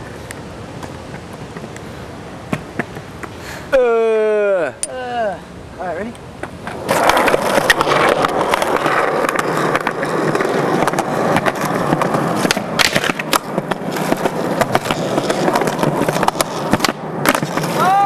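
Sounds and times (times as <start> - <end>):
skateboard wheels rolling: 0.0 - 4.5, 6.2 - 18.0
skateboard tail popping and landing: 2.5 - 3.4, 6.4 - 18.0.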